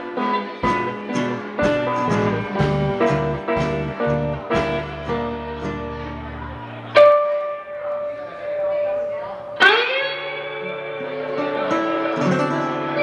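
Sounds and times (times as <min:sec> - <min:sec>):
blues band playing: 0:00.0 - 0:13.0.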